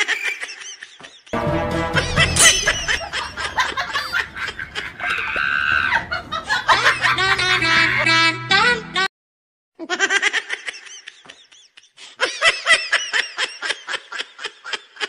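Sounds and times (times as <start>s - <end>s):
rapid high-pitched laughter: 0.0s - 1.4s, 2.0s - 8.2s, 9.8s - 15.0s
music: 1.4s - 3.0s.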